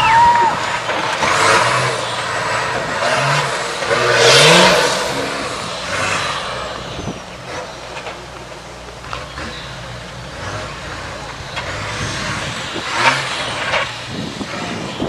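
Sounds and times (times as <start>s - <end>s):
truck engine revving: 0.0s - 15.0s.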